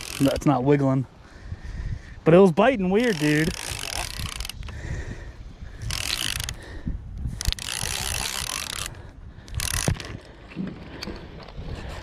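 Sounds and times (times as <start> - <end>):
fishing reel gears whirring: 0.0 - 0.4, 3.0 - 4.7, 5.8 - 6.7, 7.3 - 10.2.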